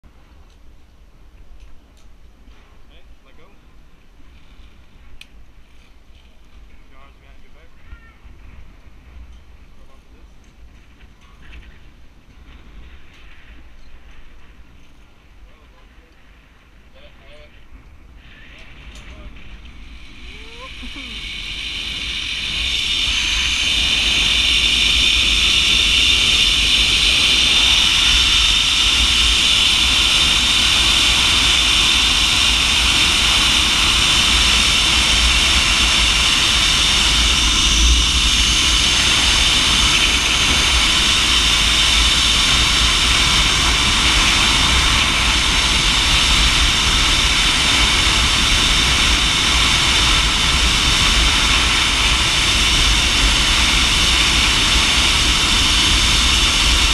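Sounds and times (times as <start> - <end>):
wind rumble on microphone: 0.1 - 56.9
zipline pulleys whining on cable: 18.1 - 56.9.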